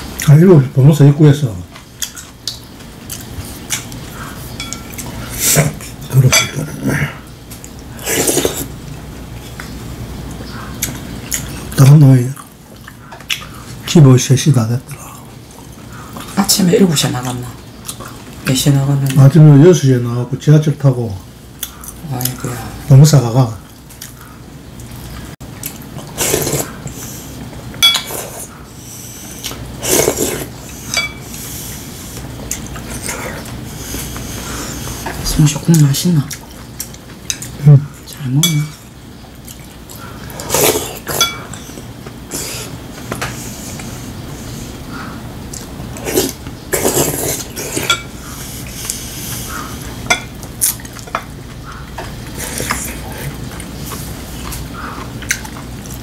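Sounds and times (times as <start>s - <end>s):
spoon clinking on ceramic bowl: 4.6s - 4.9s, 27.8s - 28.2s, 31.0s - 31.2s, 41.2s - 41.5s
chopsticks clinking on ceramic bowls: 4.6s - 5.1s, 27.8s - 28.2s, 30.9s - 31.3s, 38.4s - 38.8s, 41.1s - 41.6s, 47.8s - 48.1s, 50.1s - 50.3s
man slurping soup: 26.2s - 27.0s, 29.4s - 30.5s.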